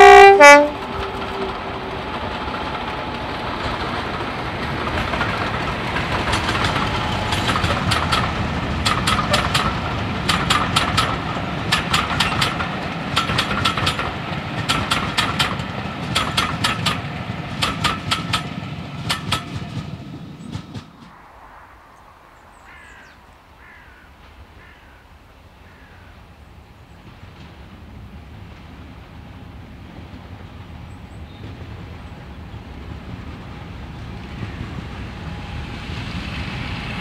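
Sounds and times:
locomotive horn: 0.0 - 1.9
locomotive engine noise: 0.0 - 25.6, 26.2 - 37.0
wheels clicking over rail joints: 0.6 - 21.1.

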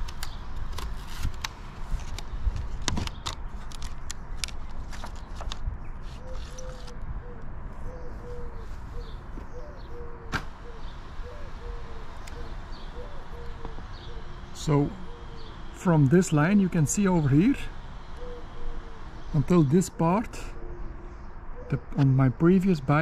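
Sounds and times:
handling clicks and crackles: 0.0 - 7.0
low bird call: 5.9 - 22.3.

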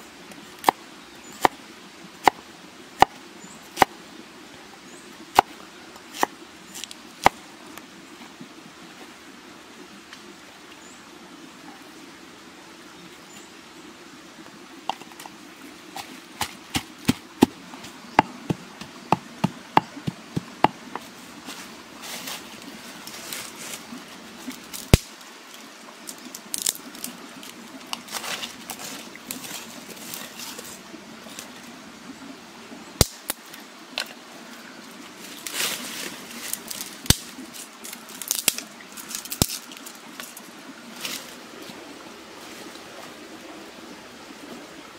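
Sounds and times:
rustling twigs and dry leaves: 15.9 - 31.5, 35.2 - 41.8
dry sticks snapping: 26.4 - 27.1, 33.0 - 33.4, 38.2 - 40.3.

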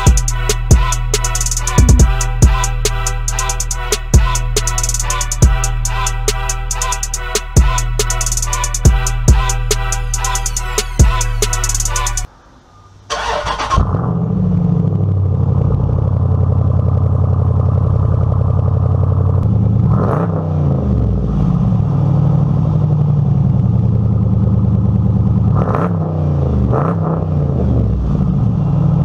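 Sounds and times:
car engine idling fast: 0.0 - 4.7, 14.5 - 19.9
engine revving: 0.0 - 12.3, 13.1 - 29.0.

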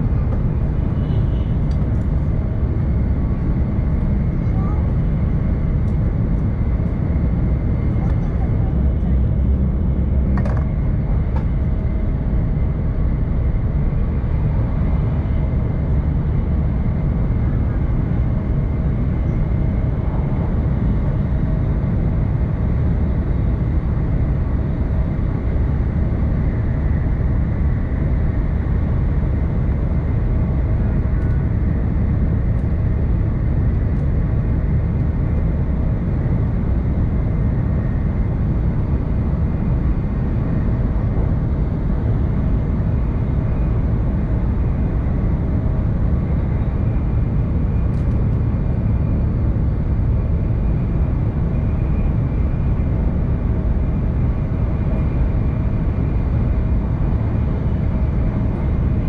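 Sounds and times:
train running rumble: 0.0 - 12.3.

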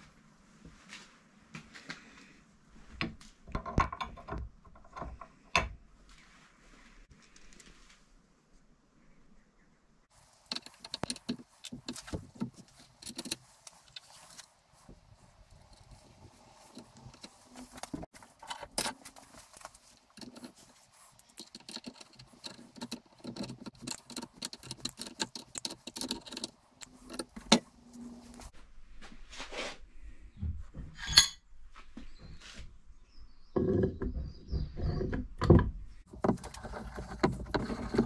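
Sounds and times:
metal tools clinking: 31.0 - 31.4.

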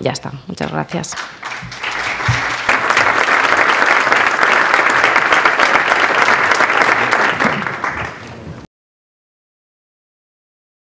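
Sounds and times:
audience applauding: 1.2 - 8.6.

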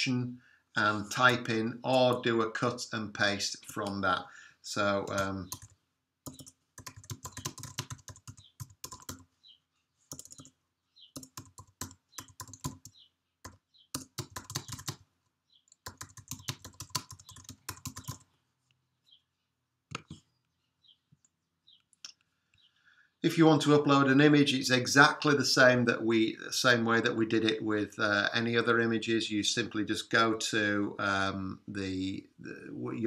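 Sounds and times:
computer keyboard typing: 5.0 - 9.3, 10.1 - 15.0, 15.7 - 18.3.

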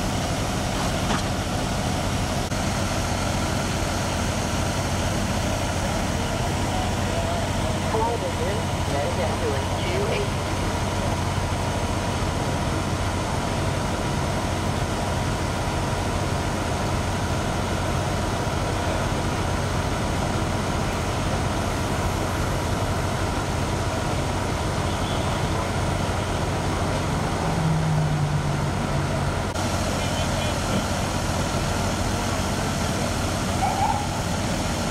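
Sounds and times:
idling vehicle engines: 0.0 - 34.9
traffic noise: 0.0 - 34.9
loud low drone: 1.6 - 34.9.

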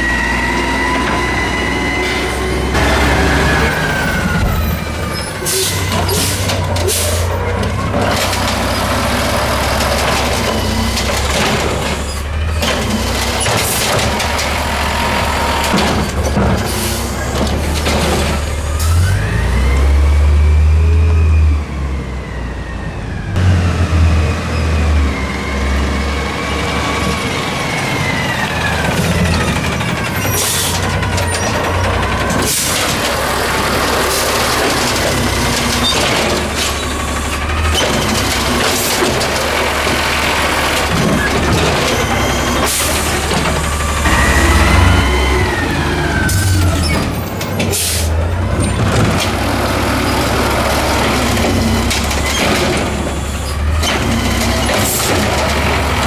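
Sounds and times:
garbage truck engine: 0.0 - 56.0
hydraulic arm lifting carts: 0.0 - 56.0
carts clanking against metal: 2.0 - 18.7, 27.9 - 56.0.

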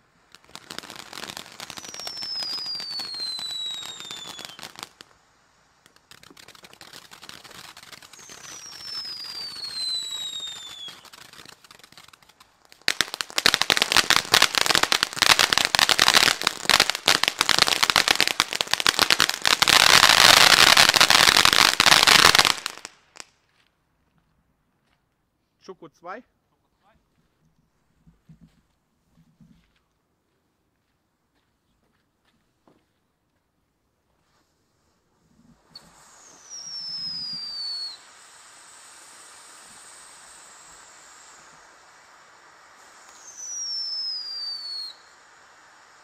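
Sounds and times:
firework fountain hissing: 0.0 - 23.4, 33.8 - 46.0
dense loud firework crackle: 0.0 - 23.9, 33.9 - 46.0
whistle falling in pitch: 35.8 - 38.0, 43.1 - 45.1.

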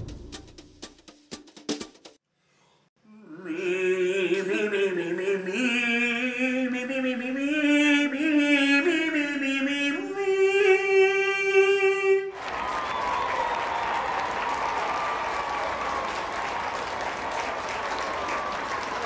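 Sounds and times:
man singing operatically: 3.2 - 12.4.

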